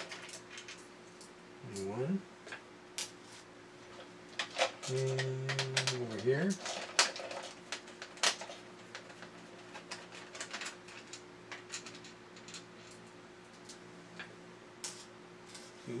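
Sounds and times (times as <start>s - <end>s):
faint steady hum: 0.0s - 16.0s.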